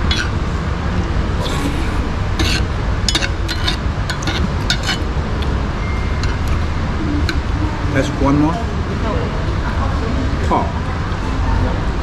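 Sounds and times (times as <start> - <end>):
metal spoon scraping skillet: 0.0 - 0.4, 1.4 - 5.5, 6.1 - 7.5
low rumble: 0.0 - 10.9.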